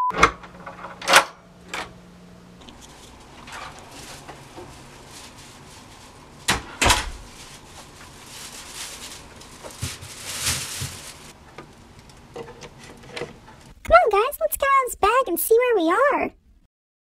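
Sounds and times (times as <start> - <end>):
faint rustling: 2.6 - 6.5, 7.1 - 11.4.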